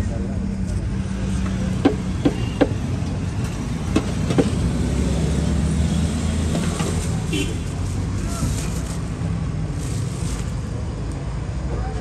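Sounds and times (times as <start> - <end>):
road traffic hum: 0.0 - 12.0.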